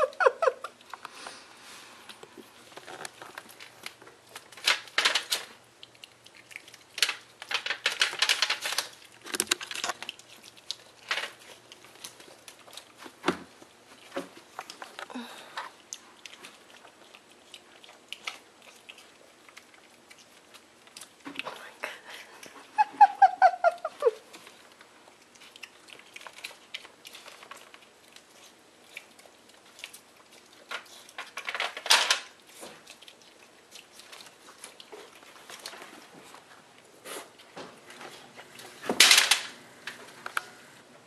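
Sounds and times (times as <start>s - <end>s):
piglet rooting through dry bedding: 32.2s - 38.8s.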